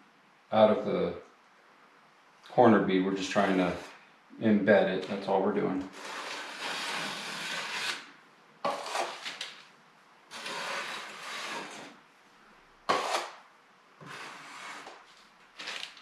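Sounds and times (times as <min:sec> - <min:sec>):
putty knife scraping joint compound: 0:05.0 - 0:09.6, 0:10.3 - 0:12.0, 0:12.9 - 0:13.4, 0:14.0 - 0:16.0.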